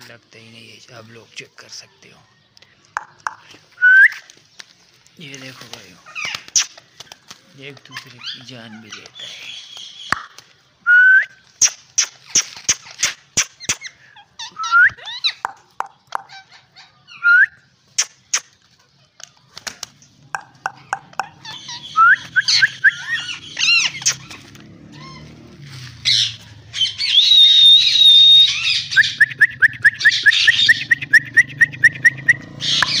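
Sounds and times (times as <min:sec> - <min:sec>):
parakeets calling: 0:05.2 - 0:07.2, 0:07.9 - 0:10.3, 0:11.6 - 0:17.2, 0:20.1 - 0:33.0.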